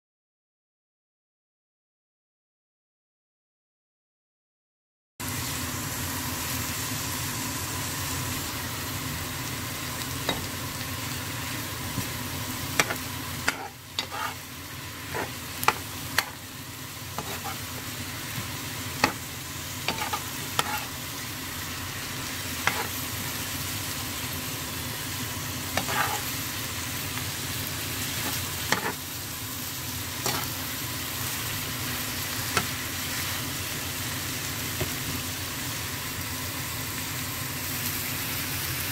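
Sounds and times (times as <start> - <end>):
food sizzling in a frying pan: 5.2 - 38.9
turner scraping against pan: 12.8 - 14.4, 15.0 - 16.4, 17.2 - 17.8, 19.9 - 21.0, 22.6 - 23.0, 25.8 - 26.4, 28.2 - 29.0.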